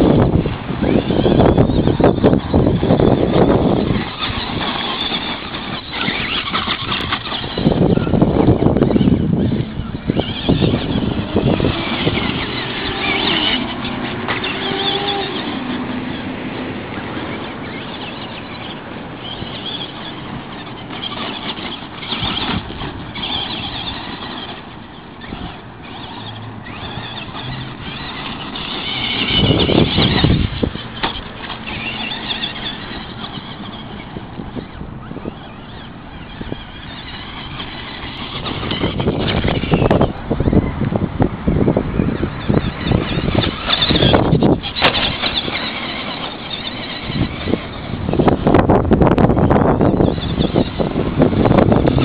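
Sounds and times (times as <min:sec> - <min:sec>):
electric motor whining: 0:00.0 - 0:52.0
tyres crunching over gravel: 0:41.7 - 0:48.6.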